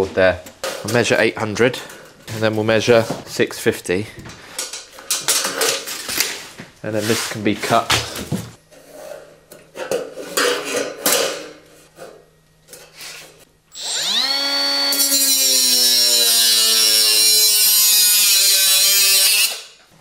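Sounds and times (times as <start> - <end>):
angle grinder whining: 13.7 - 19.8
grinder cutting through metal: 13.7 - 19.8.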